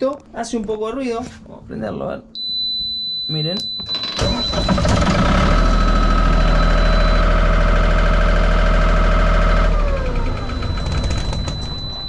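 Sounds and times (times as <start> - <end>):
generator engine drone: 3.8 - 12.0.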